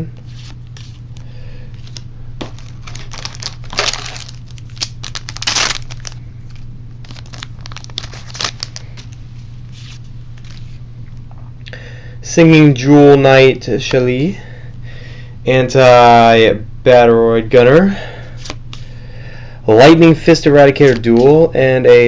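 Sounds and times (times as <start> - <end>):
foil wrapper crinkling and tearing: 1.8 - 10.8.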